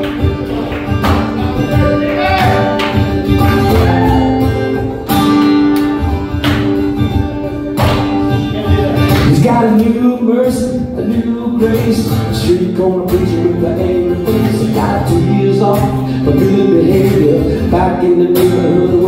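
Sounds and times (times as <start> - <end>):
acoustic guitar strumming: 0.0 - 19.0
man singing into microphone: 9.2 - 19.0.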